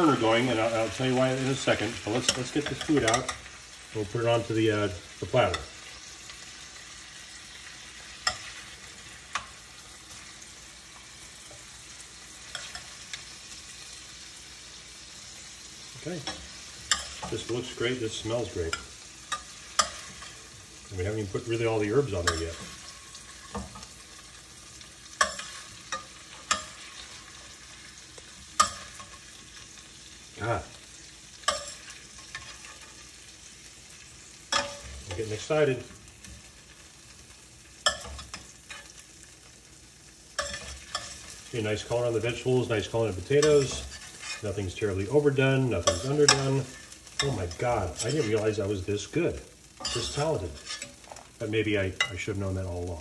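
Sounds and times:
roasting pan sizzling: 0:00.0 - 0:53.0
tongs clicking and scraping metal: 0:01.5 - 0:03.4, 0:12.4 - 0:13.3, 0:16.2 - 0:17.9, 0:18.6 - 0:20.5, 0:25.1 - 0:27.4, 0:28.2 - 0:29.4, 0:31.4 - 0:33.1, 0:34.5 - 0:35.5, 0:37.8 - 0:39.0, 0:40.4 - 0:42.0, 0:43.2 - 0:44.6, 0:45.8 - 0:48.6, 0:49.8 - 0:51.3.

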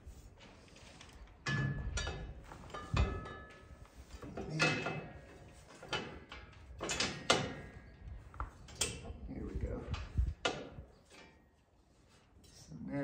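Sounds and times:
metal scraping and clanking: 0:00.5 - 0:07.9.

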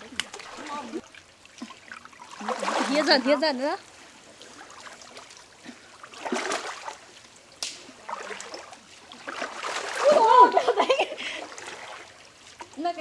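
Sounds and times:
river water splashing: 0:00.0 - 0:13.0
sharp slap on water: 0:07.6 - 0:07.9.

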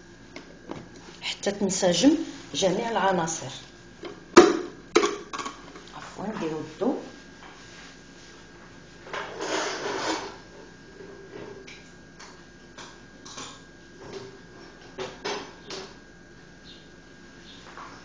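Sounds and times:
rustling scrape: 0:09.2 - 0:10.4.

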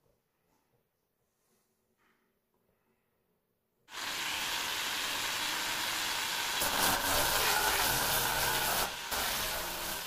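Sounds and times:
angle grinder polishing stone: 0:03.9 - 0:10.0.

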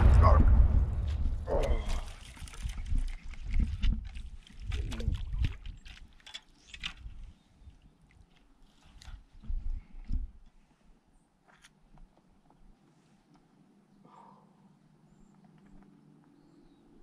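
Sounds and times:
low rumbling bumps: 0:00.0 - 0:04.1.

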